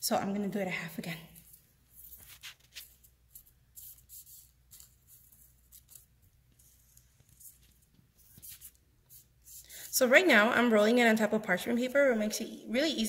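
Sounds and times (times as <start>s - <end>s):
low room hum: 0.0s - 13.0s
fingers rolling fondant on paper: 1.9s - 10.0s.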